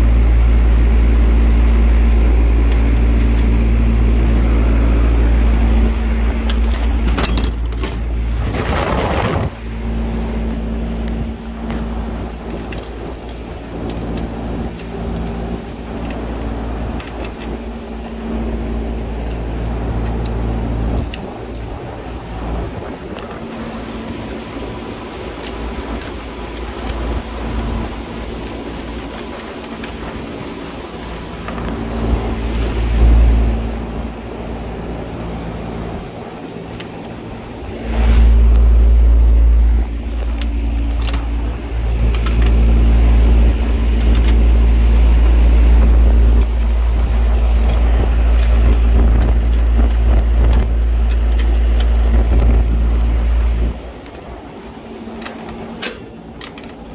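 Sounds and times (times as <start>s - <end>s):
deep rumble: 0.0s - 17.0s, 30.3s - 54.4s
refrigeration machinery humming: 0.0s - 56.9s
wrench clicking on metal bolts: 55.2s - 56.8s.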